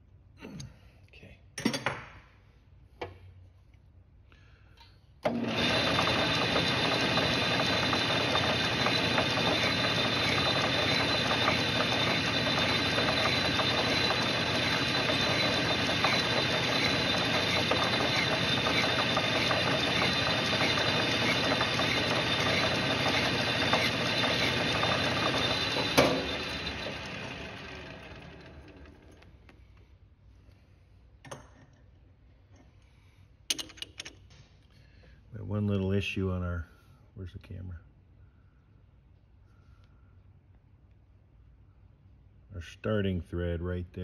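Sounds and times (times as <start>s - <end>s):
lathe whining: 5.2s - 29.3s.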